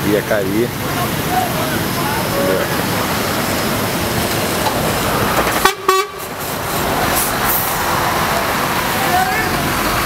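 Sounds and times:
floodwater rushing in river: 0.0 - 10.0
vehicle horn beeps: 5.6 - 6.2.

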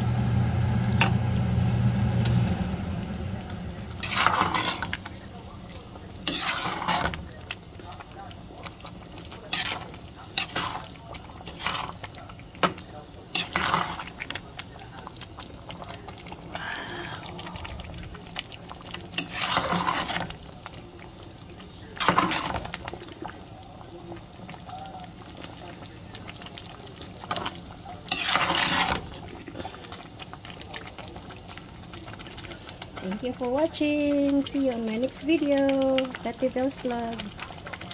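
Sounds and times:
sauce bubbling: 0.0 - 37.9
metal utensil scraping a pot: 4.0 - 5.2, 6.2 - 7.2, 9.3 - 12.1, 13.3 - 14.2, 19.1 - 20.4, 22.0 - 22.8, 28.1 - 29.2.

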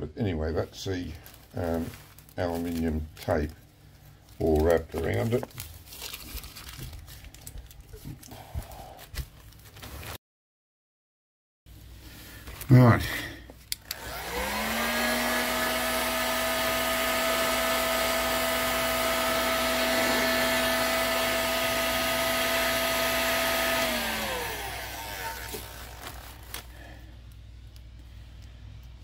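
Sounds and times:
heat gun fan whine: 13.6 - 29.0.

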